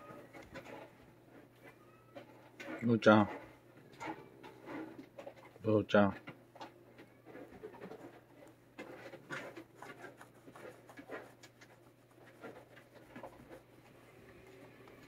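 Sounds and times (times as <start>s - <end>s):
glove rubbing cat fur: 7.9s - 15.0s.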